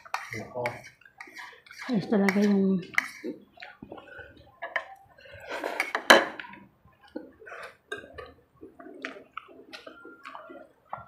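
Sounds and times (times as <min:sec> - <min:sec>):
cutlery clinking on plate: 0:05.5 - 0:06.5
cutlery clatter: 0:05.5 - 0:06.6.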